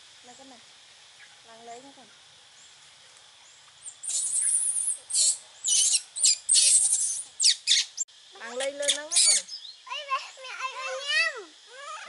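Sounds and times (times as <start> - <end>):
baby monkeys squealing: 4.0 - 9.7.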